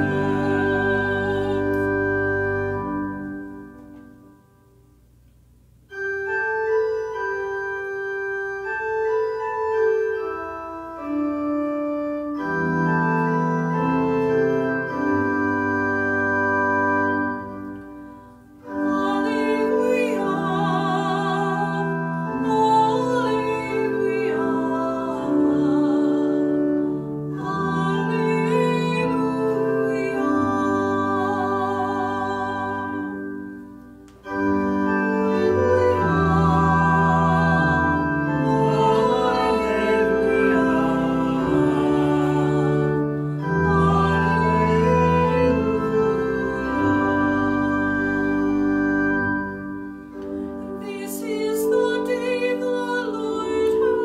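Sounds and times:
person singing with vibrato: 0:00.0 - 0:03.7, 0:18.5 - 0:54.0
organ playing sustained chords: 0:00.0 - 0:54.0.

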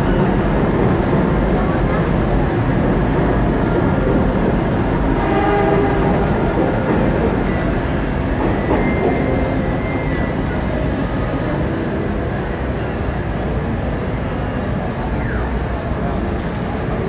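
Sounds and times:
loud rumbling noise: 0:00.0 - 0:17.0.

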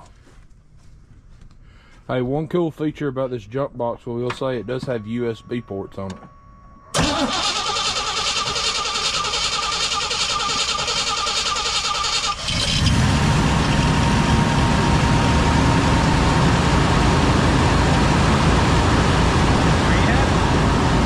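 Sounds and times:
truck engine idling: 0:07.0 - 0:21.0.

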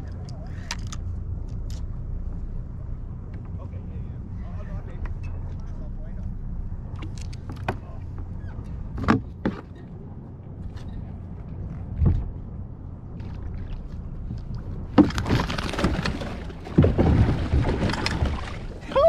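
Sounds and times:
fish thrashing and splashing: 0:15.0 - 0:18.9.

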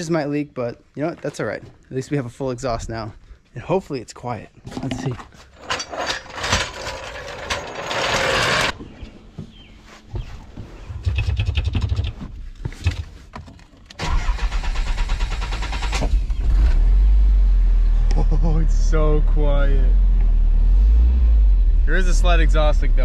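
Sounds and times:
starter cranking: 0:14.0 - 0:16.5.

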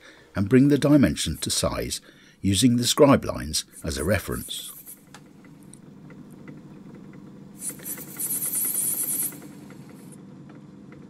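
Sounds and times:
high-pitched cutting hiss: 0:03.7 - 0:05.1, 0:07.6 - 0:10.1.

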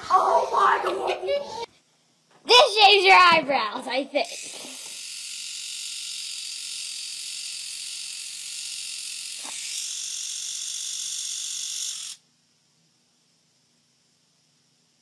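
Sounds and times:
electric razor buzzing: 0:04.2 - 0:12.2
razor click: 0:04.2 - 0:12.2.

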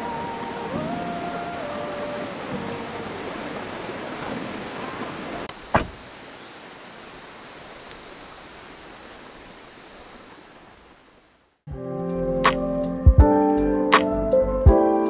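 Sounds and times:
creek rushing: 0:00.0 - 0:11.6.

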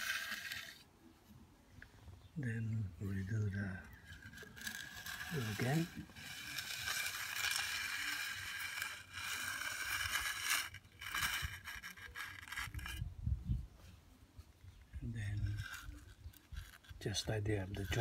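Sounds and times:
steel edger scraping concrete: 0:00.0 - 0:00.8, 0:03.8 - 0:13.0, 0:15.3 - 0:18.0.

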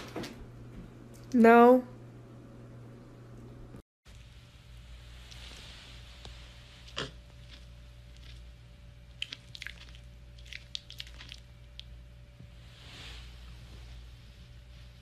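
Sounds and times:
faint steady hum: 0:00.0 - 0:15.0
pig smacking and chewing: 0:06.8 - 0:12.0.

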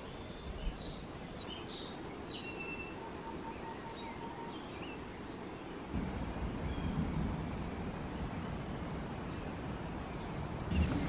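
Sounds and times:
birds chirping and whistling: 0:10.0 - 0:11.0.

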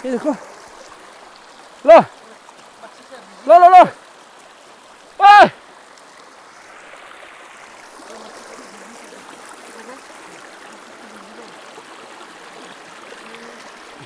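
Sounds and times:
stream running over stones: 0:00.0 - 0:14.0.

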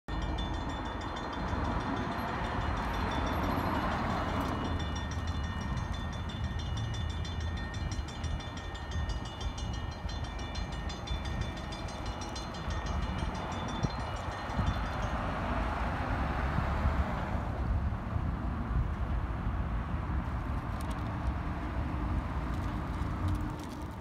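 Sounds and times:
distant freight train rumble: 0:00.1 - 0:19.1.

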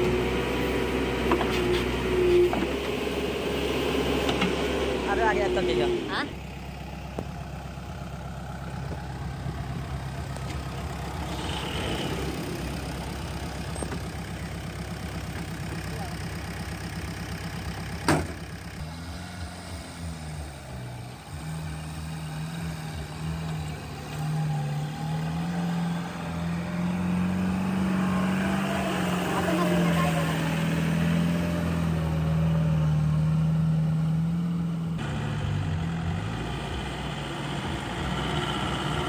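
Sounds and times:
truck diesel engine: 0:00.0 - 0:39.0.

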